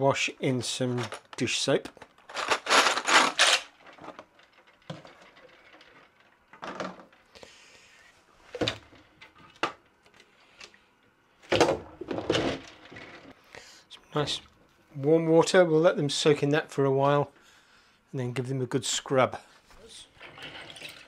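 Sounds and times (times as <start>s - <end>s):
plastic clattering: 0.9s - 7.3s, 11.5s - 13.3s.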